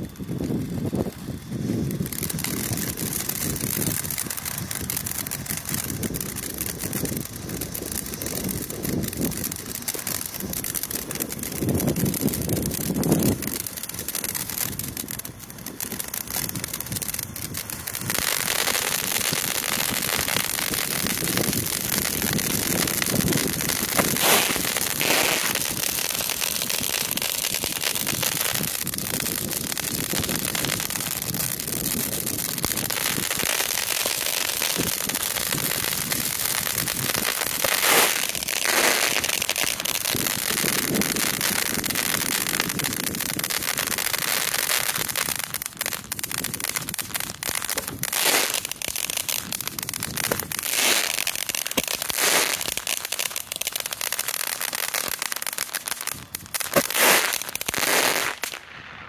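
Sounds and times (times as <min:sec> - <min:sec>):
firework bangs: 0:00.0 - 0:59.0
firework fountains hissing: 0:00.0 - 0:59.0.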